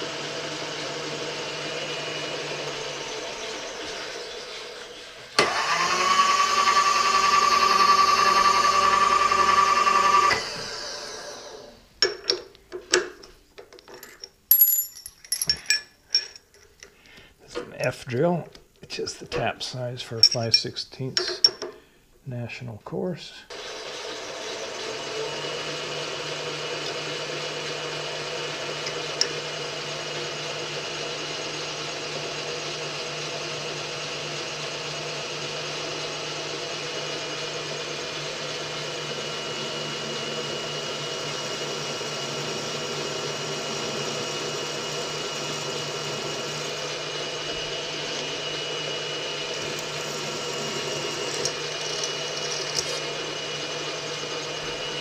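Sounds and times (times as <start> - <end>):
drill boring into metal: 0.0 - 11.8, 23.5 - 55.0
milling machine running: 0.0 - 11.8, 23.5 - 55.0.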